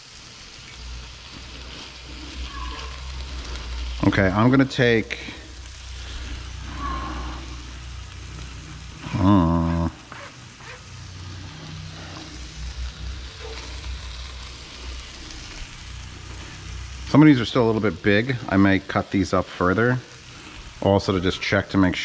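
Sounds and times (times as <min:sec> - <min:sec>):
meat sizzling in a pan: 0:00.0 - 0:22.0.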